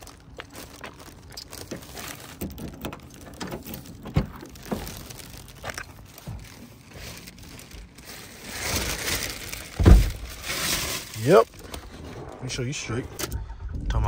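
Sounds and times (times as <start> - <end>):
plastic bag rustling: 0.0 - 12.5.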